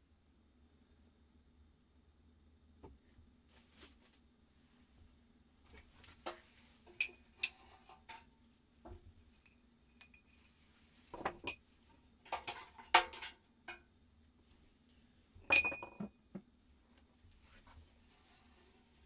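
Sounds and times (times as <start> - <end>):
metal clinking and knocking: 11.1 - 11.6, 12.2 - 13.8, 15.4 - 16.4.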